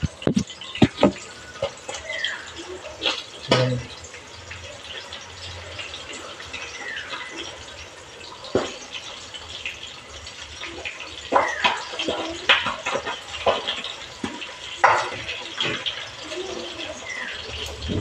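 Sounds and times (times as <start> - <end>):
knocks and clicks: 0.0 - 1.2
fish sizzling in oil: 0.0 - 18.0.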